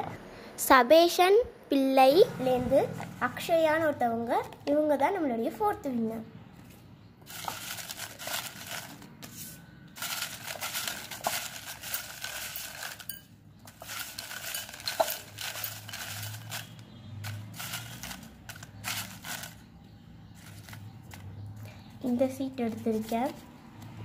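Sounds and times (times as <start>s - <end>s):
paper slips rustling: 7.3s - 19.7s, 20.4s - 21.3s, 22.0s - 23.4s.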